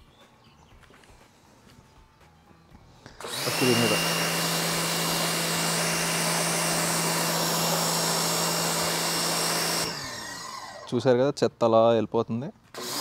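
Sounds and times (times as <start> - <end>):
pressure washer motor humming: 3.1 - 11.0, 12.7 - 13.0.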